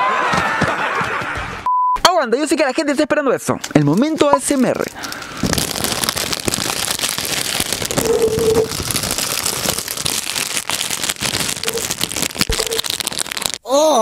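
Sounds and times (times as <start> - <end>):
plastic bag crinkling: 3.9 - 13.6.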